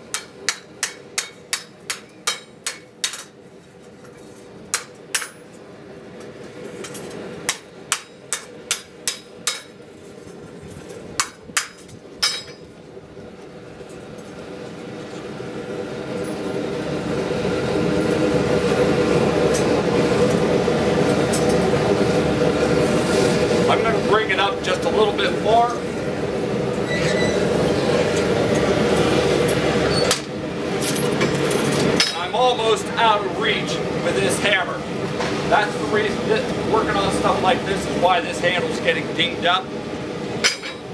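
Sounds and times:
hammer striking steel: 0:00.1 - 0:03.3, 0:07.5 - 0:09.8, 0:40.4 - 0:40.8.

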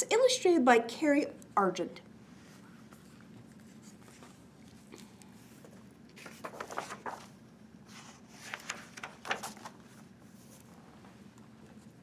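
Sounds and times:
faint low hum: 0:00.0 - 0:12.0
book pages turning: 0:02.8 - 0:10.8
paper rustling: 0:02.8 - 0:10.8.

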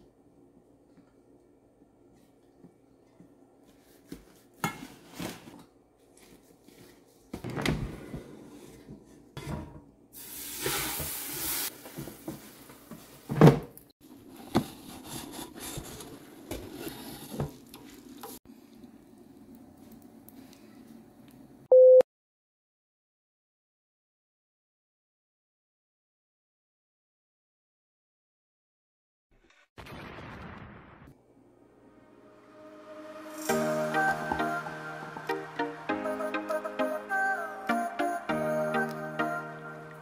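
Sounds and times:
short steady beep: 0:21.7 - 0:22.0.

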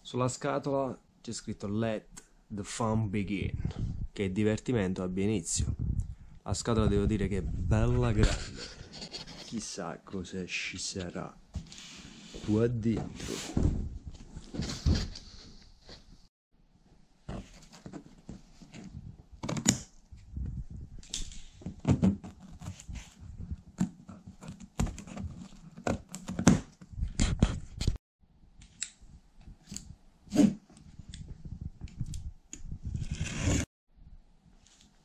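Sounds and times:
cardboard rustling: 0:17.3 - 0:19.0.

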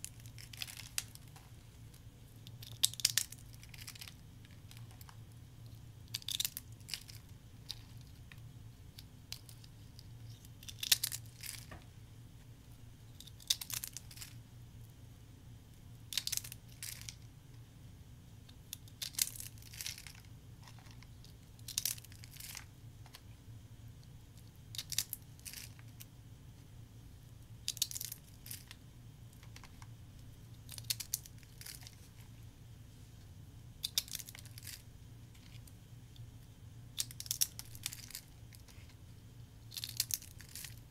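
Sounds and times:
faint low hum: 0:00.0 - 0:40.9.

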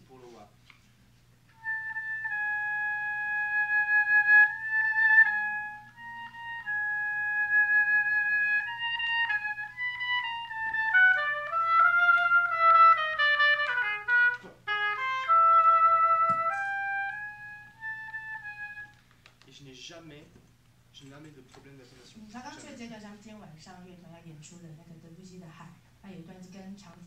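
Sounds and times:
solo oboe: 0:01.5 - 0:19.0.

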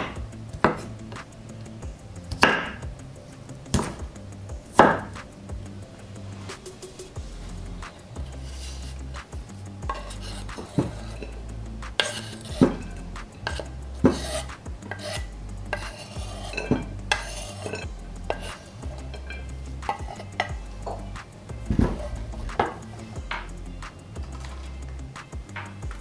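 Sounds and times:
knife scraping wooden board: 0:06.4 - 0:11.4, 0:12.0 - 0:21.1.

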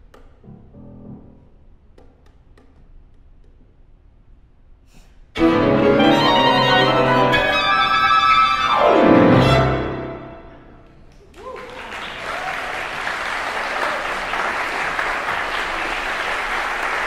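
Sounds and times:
violin clarinet and piano chord: 0:05.4 - 0:10.7.

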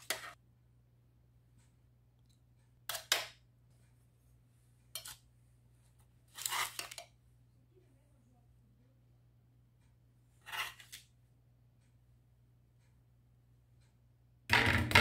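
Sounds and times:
metal spoon scraping roasting tray: 0:00.0 - 0:00.4, 0:05.0 - 0:05.2, 0:06.4 - 0:07.0, 0:10.4 - 0:11.0.

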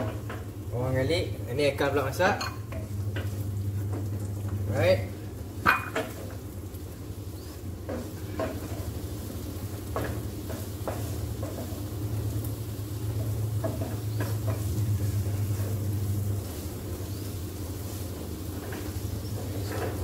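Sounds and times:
onion and garlic frying in oil: 0:00.0 - 0:20.0
steady low hum: 0:00.0 - 0:20.0
spatula scraping and tapping pan: 0:07.4 - 0:20.0.

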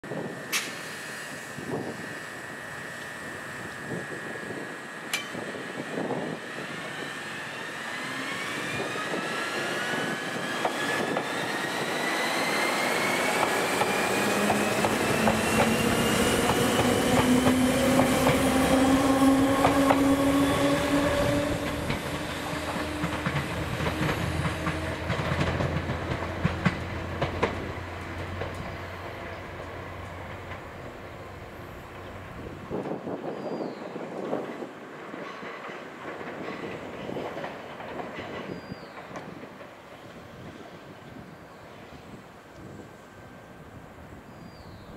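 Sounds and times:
electric train motor whine: 0:00.1 - 0:33.2
wheels clacking over rail joints: 0:12.4 - 0:31.1, 0:34.2 - 0:40.2.

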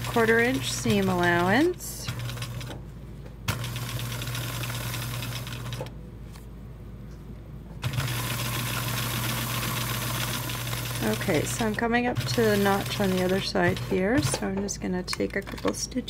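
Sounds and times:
sewing machine stitching: 0:00.0 - 0:02.8, 0:03.5 - 0:05.9, 0:07.8 - 0:14.6.

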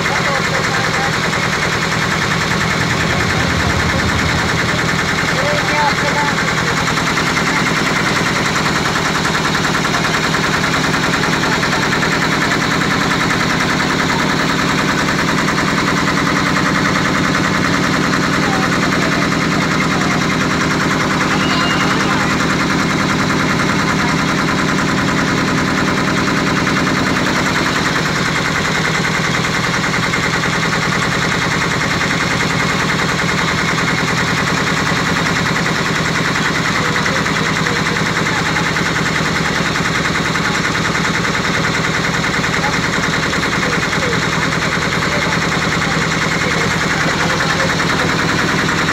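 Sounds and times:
boat engine running: 0:00.0 - 0:48.9.

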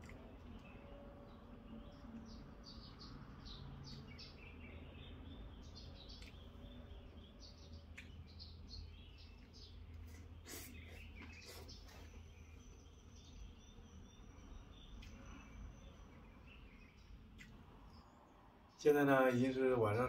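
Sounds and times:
low steady hum: 0:00.0 - 0:20.0
small birds chirping: 0:00.0 - 0:20.0.

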